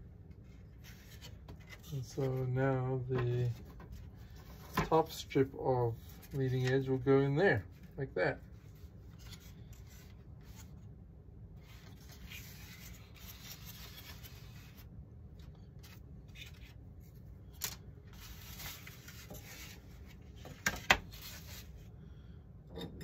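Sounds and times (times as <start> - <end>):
rubbing and scraping of wood parts: 18.1 - 21.8.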